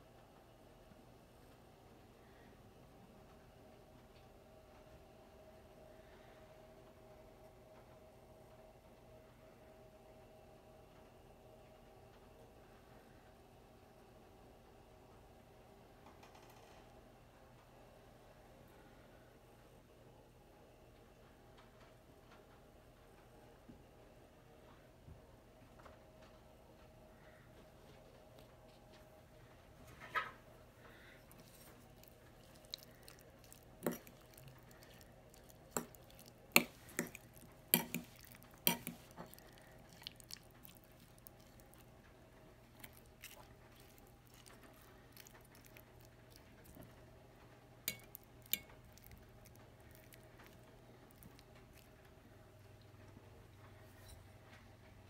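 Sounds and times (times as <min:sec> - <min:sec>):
steady low hum: 0:16.9 - 0:55.0
fork clinking on ceramic plate: 0:33.4 - 0:39.4, 0:47.9 - 0:49.1.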